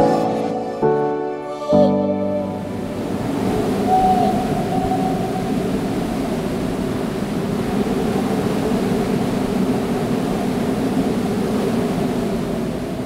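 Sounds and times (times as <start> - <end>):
wind and sea rushing: 0.0 - 13.0.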